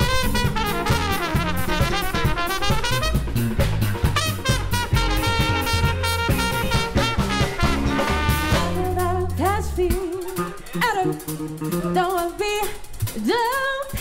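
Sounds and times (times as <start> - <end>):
trumpet: 0.0 - 9.2
bass: 0.0 - 14.0
drums: 0.0 - 14.0
woman singing: 8.6 - 14.0.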